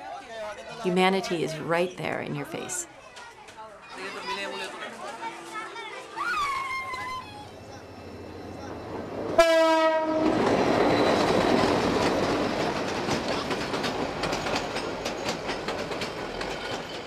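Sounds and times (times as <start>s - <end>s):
train rumbling past: 7.2s - 17.0s
train horn blast: 9.4s - 10.4s
wheels clattering over rails: 10.3s - 17.0s.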